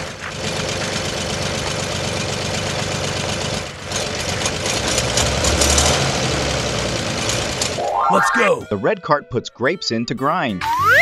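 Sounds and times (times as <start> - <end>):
tractor engine running: 0.0 - 5.4.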